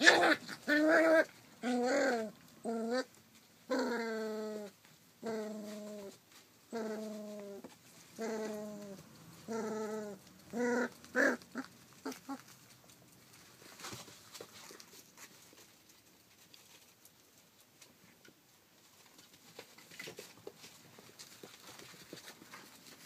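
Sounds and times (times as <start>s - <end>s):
paws scrabbling: 4.8s - 18.0s, 18.8s - 23.0s.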